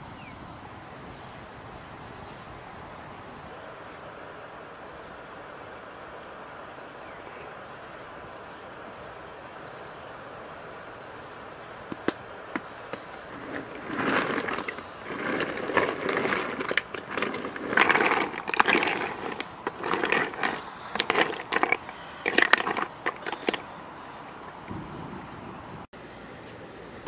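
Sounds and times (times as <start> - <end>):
snail shells clattering in pot: 12.9 - 23.7.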